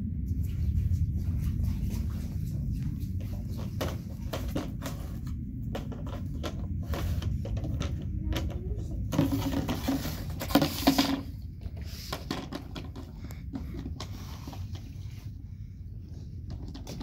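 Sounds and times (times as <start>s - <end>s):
plastic bucket scraping on stone: 3.4s - 8.1s, 9.0s - 14.8s.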